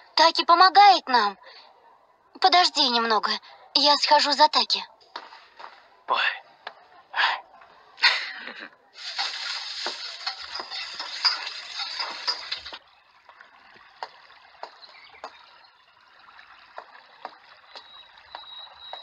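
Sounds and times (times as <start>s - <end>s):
faint water drips: 8.9s - 19.0s.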